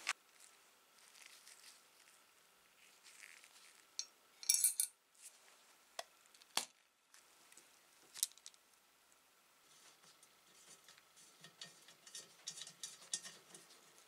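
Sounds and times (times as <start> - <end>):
metal parts and wrench clinking: 4.0 - 5.0.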